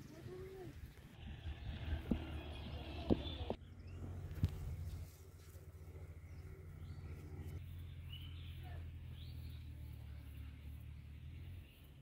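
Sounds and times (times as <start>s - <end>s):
low steady rumble: 0.0s - 12.0s
bird chirps: 6.1s - 12.0s.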